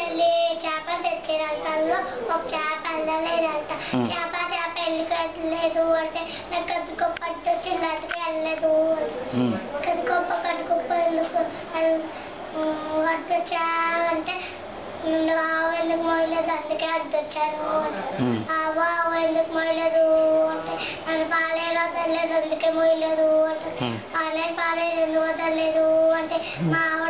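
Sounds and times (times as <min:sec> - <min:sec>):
boy singing long notes: 0:26.6 - 0:27.0.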